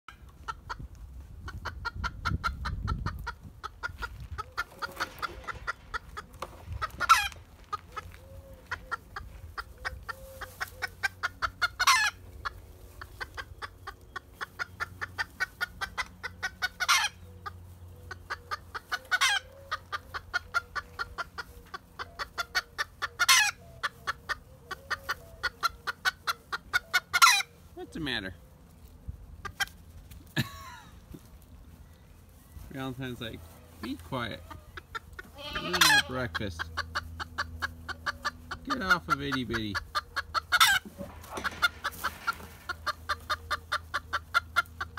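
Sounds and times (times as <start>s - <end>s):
hen clucking: 0.1s - 44.9s
hen squawking: 3.0s - 28.2s, 33.8s - 44.9s.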